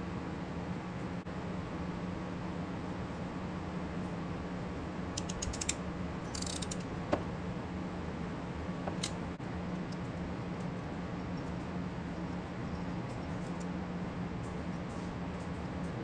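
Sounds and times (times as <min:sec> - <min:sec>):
low hum: 0:00.9 - 0:16.0
ratcheting crimper clicks: 0:05.2 - 0:06.9.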